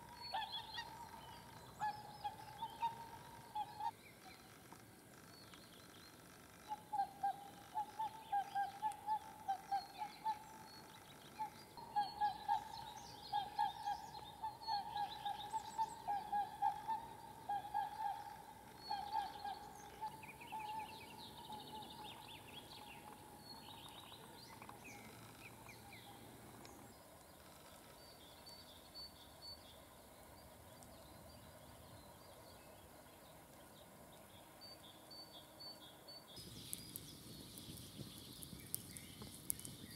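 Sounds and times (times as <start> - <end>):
bird repeating low call: 0.0 - 4.0, 6.6 - 26.2.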